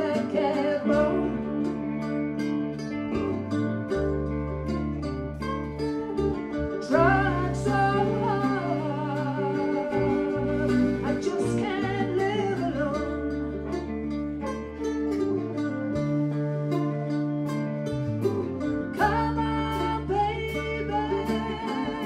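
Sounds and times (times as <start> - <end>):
woman singing: 0.0 - 2.1, 6.8 - 13.4, 18.9 - 22.0
live blues band: 0.0 - 22.0.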